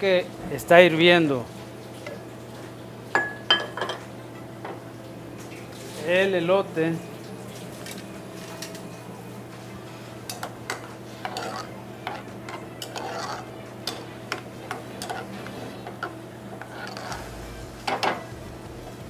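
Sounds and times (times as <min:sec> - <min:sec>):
boiling water: 0:00.1 - 0:19.0
metal spoon stirring in saucepan: 0:10.3 - 0:18.2
steady low hum: 0:14.6 - 0:19.0.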